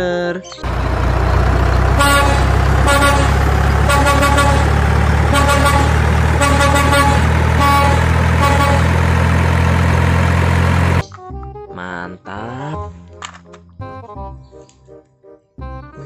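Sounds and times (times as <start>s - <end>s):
diesel truck engine droning: 0.6s - 11.0s
truck air horn toots: 1.5s - 11.0s.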